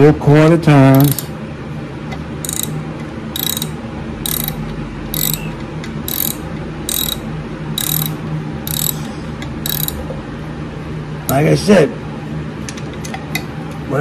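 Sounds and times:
socket ratchet clicking: 0:00.9 - 0:01.3, 0:02.4 - 0:02.8, 0:03.4 - 0:05.5, 0:06.1 - 0:07.2, 0:07.8 - 0:09.0, 0:09.6 - 0:10.0.

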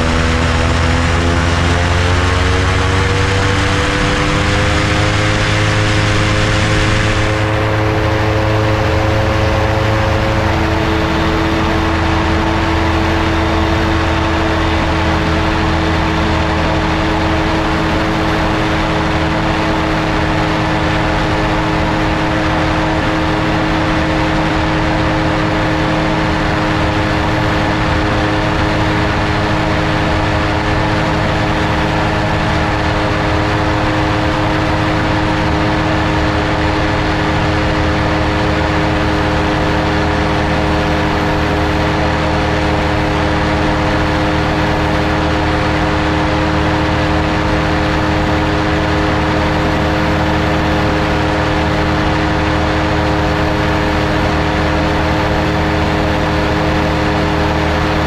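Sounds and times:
ultralight engine and propeller drone: 0:00.0 - 0:58.0.

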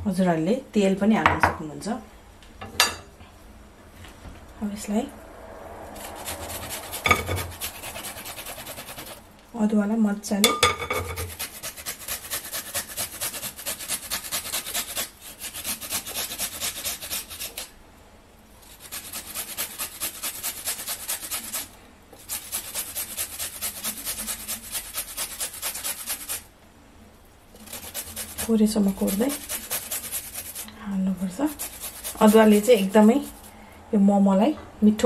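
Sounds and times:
ginger rasping on metal grater: 0:06.0 - 0:09.2, 0:11.0 - 0:17.7, 0:18.6 - 0:26.5, 0:27.5 - 0:33.5.

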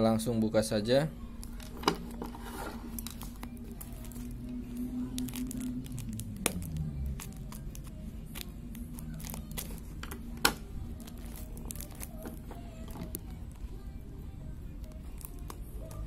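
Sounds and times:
wrapping crinkling and rustling: 0:01.4 - 0:10.3, 0:10.9 - 0:13.6, 0:14.8 - 0:16.0.

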